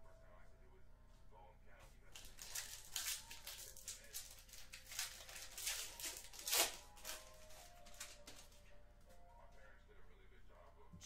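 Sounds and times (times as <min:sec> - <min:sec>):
foil wrapper crinkling and tearing: 0:02.1 - 0:08.6.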